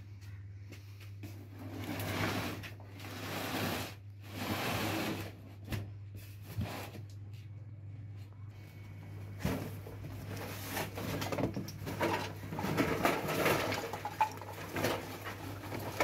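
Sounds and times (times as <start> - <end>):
box scraping on concrete: 1.5 - 5.4.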